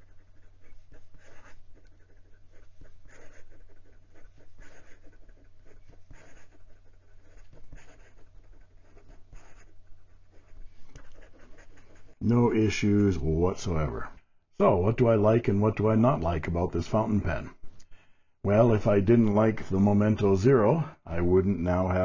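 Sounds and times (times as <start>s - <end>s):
pen nib scratching on paper: 0.0s - 12.3s.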